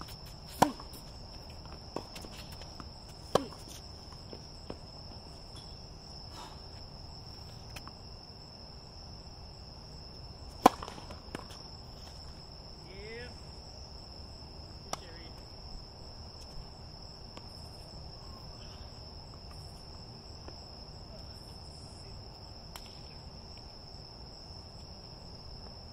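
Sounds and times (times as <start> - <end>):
tennis ball bouncing: 0.0 - 5.8, 10.5 - 11.7
crickets chirring: 0.0 - 25.9
tennis racket hitting ball: 0.1 - 4.8, 10.5 - 11.6.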